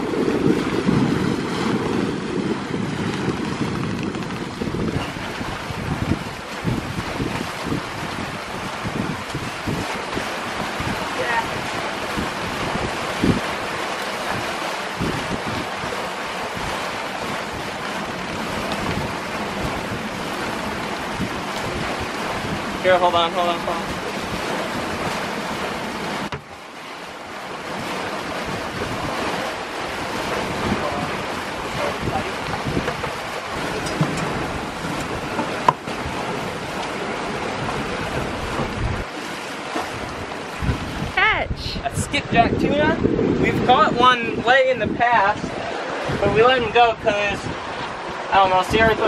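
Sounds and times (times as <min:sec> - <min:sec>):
boat wake rushing: 0:00.0 - 0:49.0
wind buffeting microphone: 0:00.0 - 0:49.0
low thumps: 0:03.0 - 0:05.2, 0:32.4 - 0:36.2.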